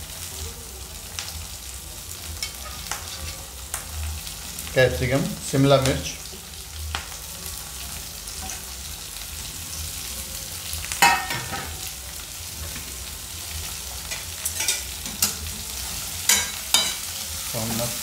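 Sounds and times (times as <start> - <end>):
vegetables sizzling in hot oil: 0.0 - 18.0
steel utensils clanking on pan: 2.4 - 3.4, 11.0 - 11.8, 14.1 - 15.5, 16.2 - 17.8.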